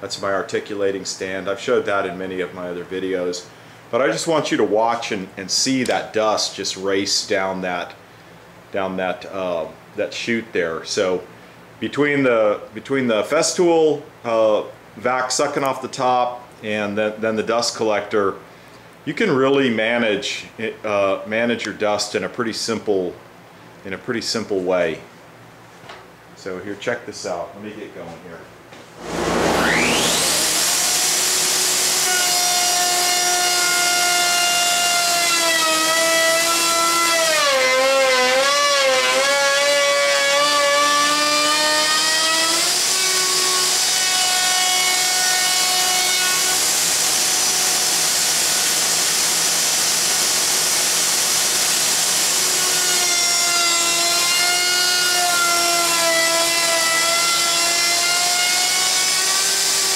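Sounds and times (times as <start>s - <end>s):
dust collector rushing: 29.0s - 30.8s
router cutting wood: 29.0s - 59.9s.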